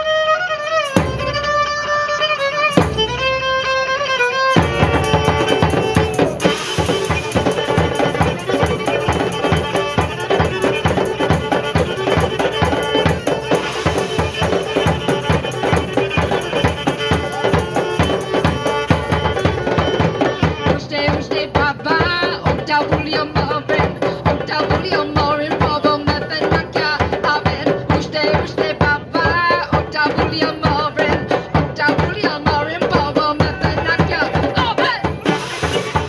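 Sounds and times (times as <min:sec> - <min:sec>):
fiddle melody: 0:00.0 - 0:22.4, 0:34.9 - 0:36.0
drums quick steady beat: 0:00.8 - 0:01.8, 0:02.6 - 0:03.6, 0:04.5 - 0:36.0.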